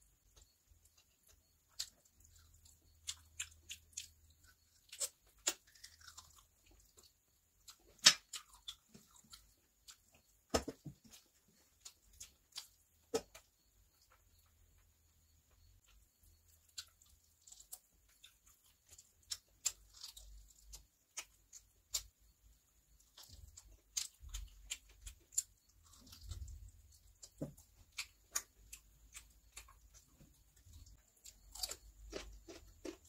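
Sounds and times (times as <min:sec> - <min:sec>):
wet mouth clicks and chewing: 0:00.4 - 0:14.1, 0:16.4 - 0:33.0.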